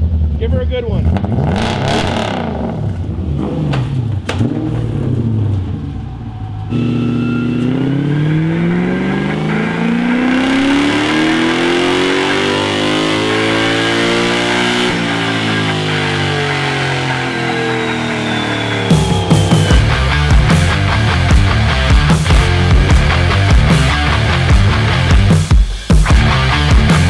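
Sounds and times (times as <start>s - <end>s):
engine revving on dyno: 1.0s - 5.4s, 6.7s - 20.1s.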